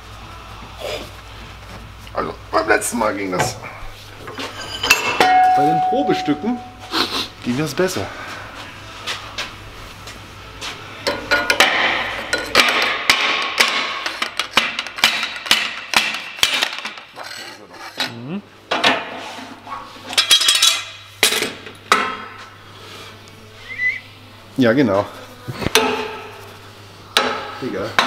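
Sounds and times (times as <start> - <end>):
hammer knocking metal tube: 11.1 - 16.8.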